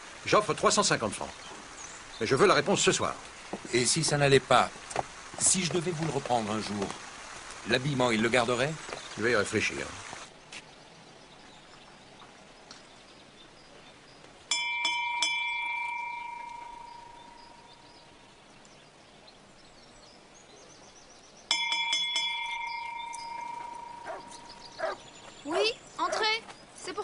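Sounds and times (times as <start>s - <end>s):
metal gate bell ringing: 14.5s - 17.6s, 21.5s - 24.8s.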